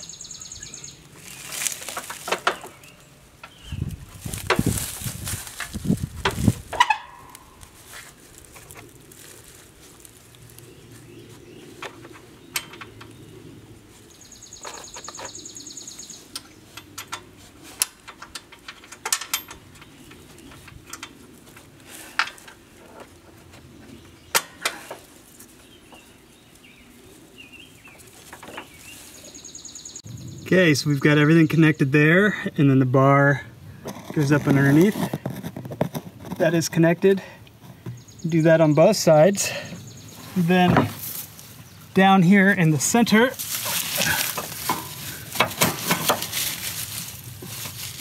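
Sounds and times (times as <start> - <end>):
light metal clicks and knocks: 16.3 - 23.1.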